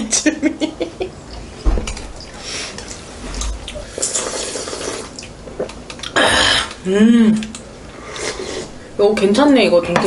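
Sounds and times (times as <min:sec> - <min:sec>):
person slurping and chewing soup: 0:02.2 - 0:06.8, 0:07.4 - 0:08.8.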